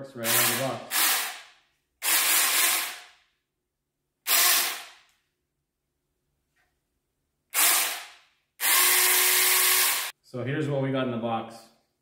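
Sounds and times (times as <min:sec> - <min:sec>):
cordless chainsaw whirring: 0:00.2 - 0:01.4, 0:04.3 - 0:05.0, 0:07.5 - 0:10.1.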